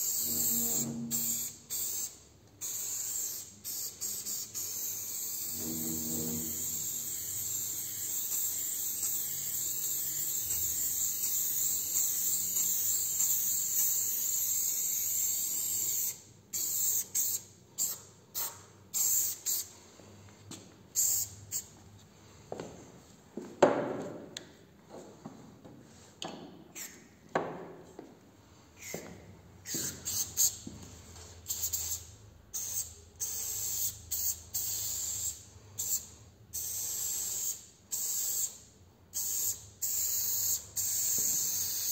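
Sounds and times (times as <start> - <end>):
spray paint can hissing: 0.0 - 19.8, 21.0 - 21.7, 29.6 - 30.6, 31.4 - 41.9.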